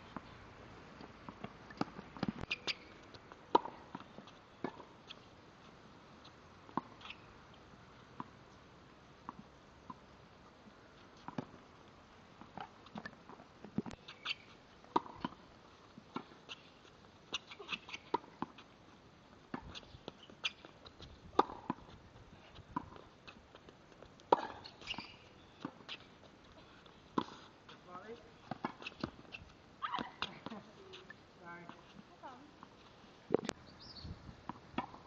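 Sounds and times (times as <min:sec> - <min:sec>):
shoe squeaks on court: 0:02.4 - 0:03.0, 0:14.0 - 0:14.6, 0:24.4 - 0:26.1
tennis balls hit with rackets: 0:29.8 - 0:31.0.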